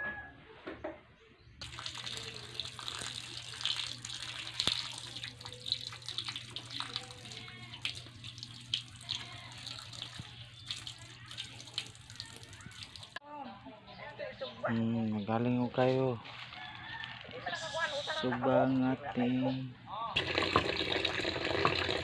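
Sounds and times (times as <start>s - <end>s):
water splashing and trickling: 1.6s - 13.2s, 20.2s - 22.0s.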